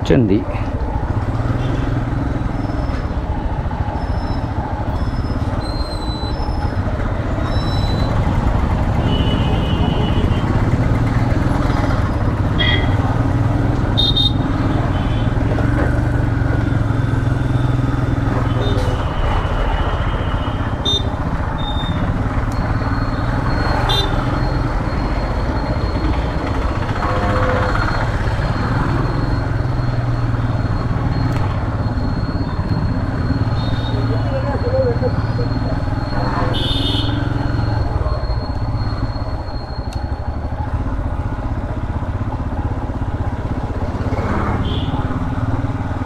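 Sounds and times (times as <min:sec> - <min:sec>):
vehicle horn toots: 0:09.0 - 0:10.6, 0:12.6 - 0:13.0, 0:13.9 - 0:15.3, 0:27.0 - 0:27.8, 0:36.5 - 0:37.3, 0:44.6 - 0:45.0.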